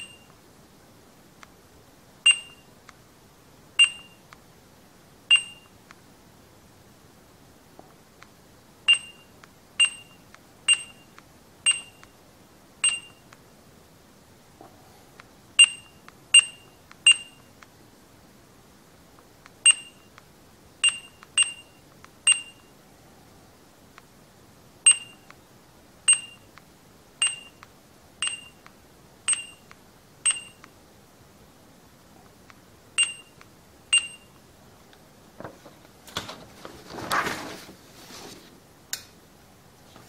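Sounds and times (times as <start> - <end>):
barcode scanner beeps: 0.0 - 0.3, 2.3 - 2.7, 3.8 - 4.2, 5.3 - 5.8, 8.9 - 12.1, 12.8 - 13.3, 15.6 - 17.5, 19.6 - 20.2, 20.8 - 22.7, 24.9 - 25.3, 26.1 - 26.5, 27.2 - 27.6, 28.2 - 28.6, 29.3 - 30.6, 33.0 - 34.4.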